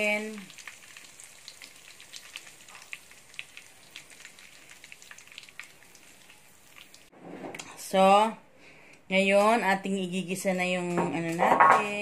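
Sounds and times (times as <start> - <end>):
chicken sizzling in wok: 0.0 - 7.1.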